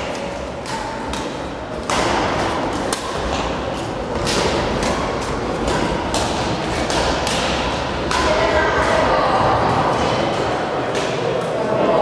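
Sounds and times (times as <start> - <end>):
racket hitting shuttlecock: 0.0 - 9.1
echoing hall din: 0.0 - 12.0.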